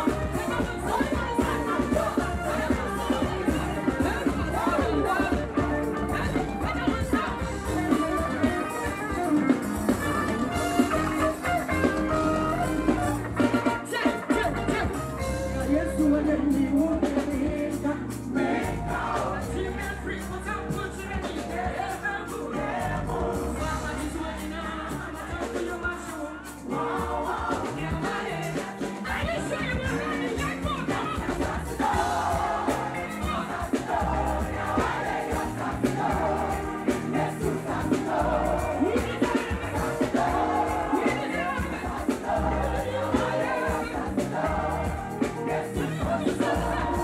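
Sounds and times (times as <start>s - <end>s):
backing singers: 0.0s - 47.0s
band with bass and drums: 0.0s - 47.0s
woman singing gospel: 0.0s - 47.0s.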